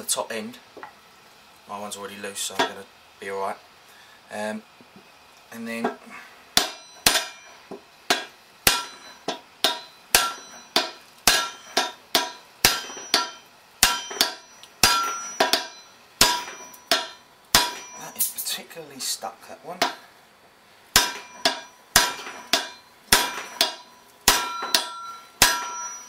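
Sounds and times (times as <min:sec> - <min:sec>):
hammer clanging on metal: 0:06.6 - 0:18.6, 0:19.8 - 0:20.1, 0:20.9 - 0:26.0.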